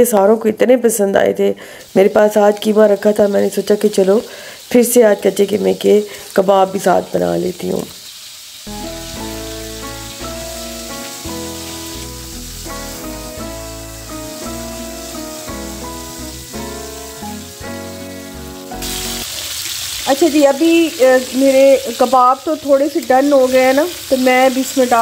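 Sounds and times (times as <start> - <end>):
meat sizzling in oil: 1.7 - 25.0
background music with melody and bass: 8.7 - 19.3.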